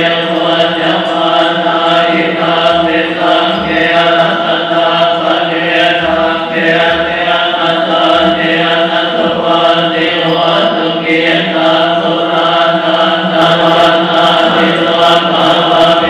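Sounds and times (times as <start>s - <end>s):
monks chanting in unison: 0.0s - 16.0s.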